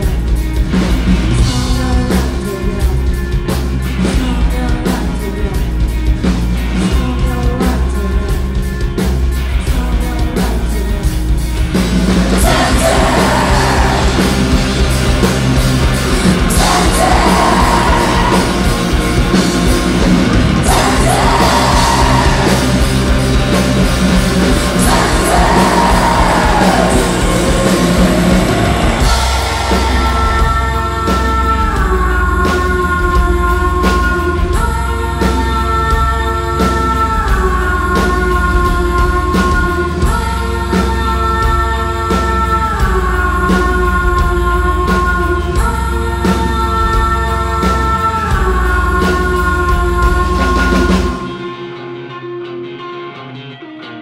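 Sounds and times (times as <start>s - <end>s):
electric guitar: 0.0s - 54.0s
live rock music: 0.0s - 54.0s
person singing: 12.3s - 51.8s.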